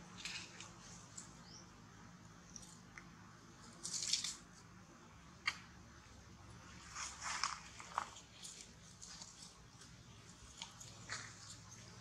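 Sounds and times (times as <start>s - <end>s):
dry leaves crackling and rustling: 6.8s - 9.6s.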